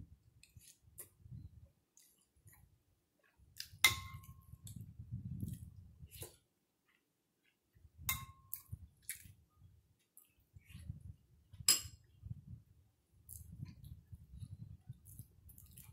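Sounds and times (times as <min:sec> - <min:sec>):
spoon clinking against a bowl: 0:03.8 - 0:04.4, 0:08.1 - 0:08.6
chewing and slurping: 0:15.0 - 0:15.9.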